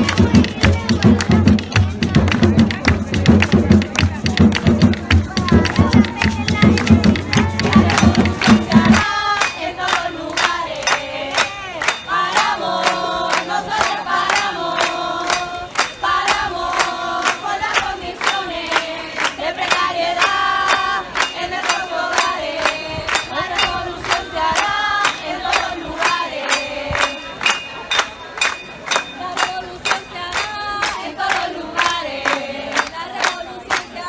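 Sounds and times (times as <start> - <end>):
steady percussive beat: 0.0 - 33.4
women singing in unison: 5.6 - 27.4, 29.2 - 34.0.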